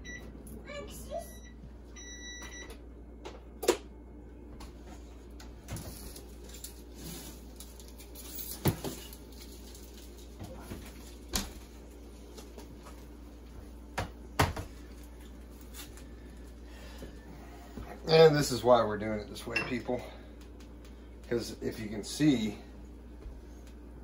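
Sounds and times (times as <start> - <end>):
low steady hum: 0.0 - 24.0
kitchen knocks and clanks: 14.0 - 14.8.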